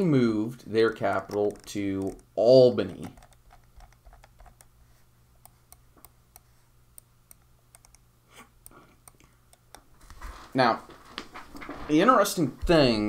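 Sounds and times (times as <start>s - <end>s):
low steady hum: 0.0s - 13.0s
computer mouse clicking: 0.9s - 4.8s, 5.4s - 8.0s, 8.6s - 9.9s.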